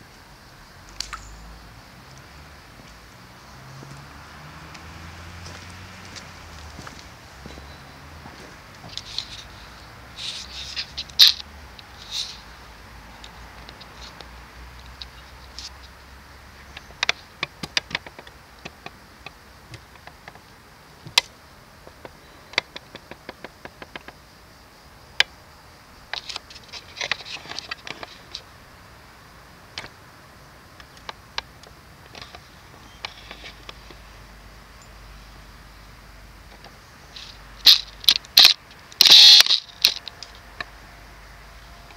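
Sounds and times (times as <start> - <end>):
faint steady hiss: 0.0 - 41.9
sharp clicks and ticks: 36.5 - 40.7.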